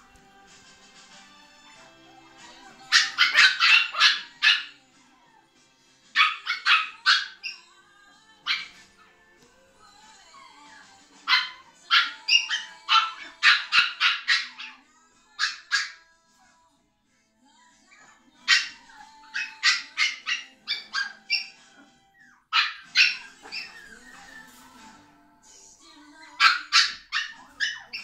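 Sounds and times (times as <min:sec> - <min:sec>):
puppy yipping and squealing: 0:02.9 - 0:04.7, 0:06.2 - 0:07.6, 0:08.5 - 0:08.9, 0:11.2 - 0:14.8, 0:15.4 - 0:16.0, 0:17.9 - 0:24.4, 0:26.4 - 0:28.0.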